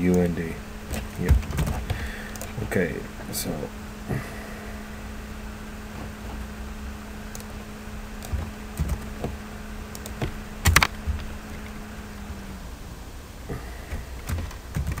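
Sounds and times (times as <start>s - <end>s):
steady low hum: 0.0s - 15.0s
keyboard keystrokes: 0.9s - 2.5s, 8.2s - 9.3s, 9.9s - 11.3s, 14.2s - 15.0s.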